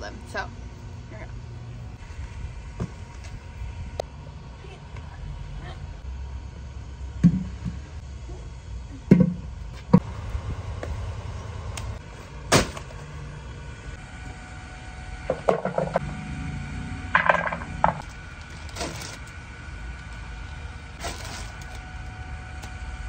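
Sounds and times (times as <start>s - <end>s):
steady low rumble: 0.0s - 23.0s
plant pots knocking on pavement: 17.1s - 18.0s.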